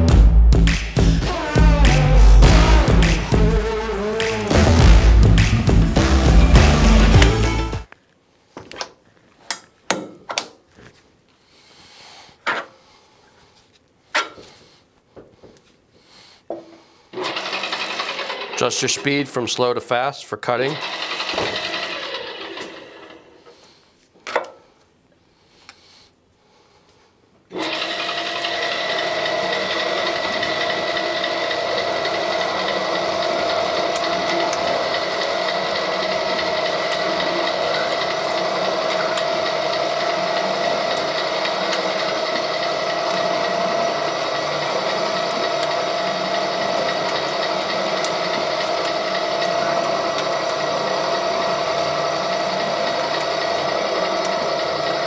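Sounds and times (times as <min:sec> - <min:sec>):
pipe threading machine whining: 0:00.8 - 0:07.9, 0:17.1 - 0:19.5, 0:20.7 - 0:23.5, 0:27.5 - 0:55.0.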